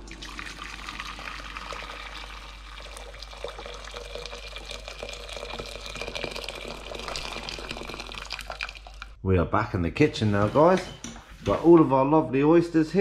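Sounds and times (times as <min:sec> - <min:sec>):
water pouring into saucepan: 0:00.0 - 0:09.2.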